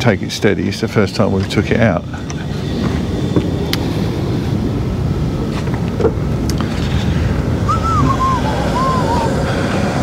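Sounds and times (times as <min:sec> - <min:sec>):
wind buffeting microphone: 0:00.0 - 0:10.0
wavering whistle: 0:07.6 - 0:09.4.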